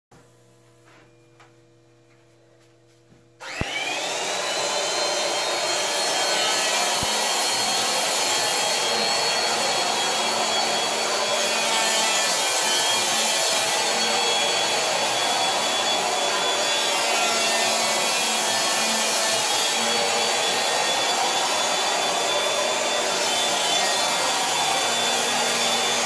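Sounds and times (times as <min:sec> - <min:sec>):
planer shaving foam hiss: 0:03.4 - 0:26.0
power planer motor whine: 0:03.4 - 0:26.0.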